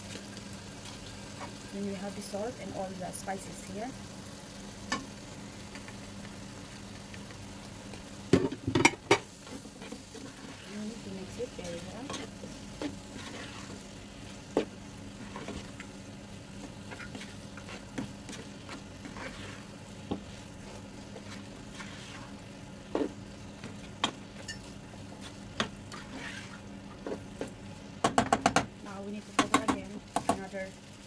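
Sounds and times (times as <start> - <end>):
vegetables sizzling in frying pan: 0.0 - 31.0
spatula tapping and scraping pan: 29.3 - 30.5.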